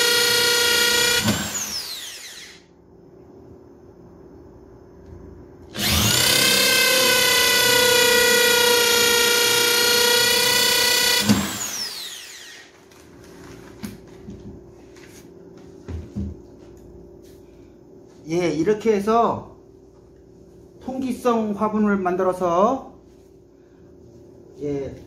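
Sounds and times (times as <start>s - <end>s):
electric drill boring into wood: 0.0s - 2.7s, 5.7s - 12.8s.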